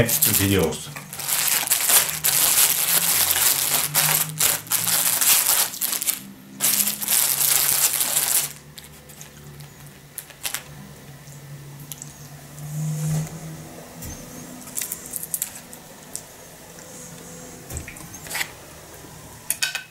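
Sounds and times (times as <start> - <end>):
foil wrappers crinkling: 0.0 - 10.7, 14.6 - 16.2.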